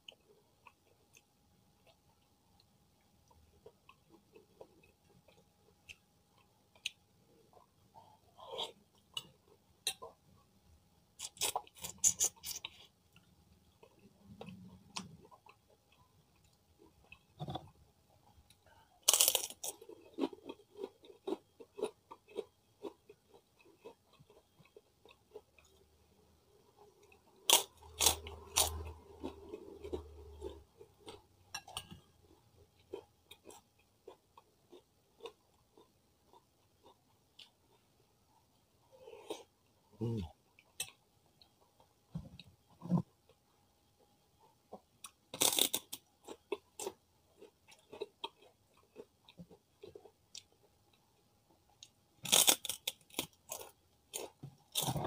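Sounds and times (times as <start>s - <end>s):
soft chewing: 0.0s - 10.5s, 11.2s - 55.0s
crackers crunching: 19.0s - 22.4s, 27.4s - 31.2s, 45.3s - 49.4s, 52.2s - 55.0s.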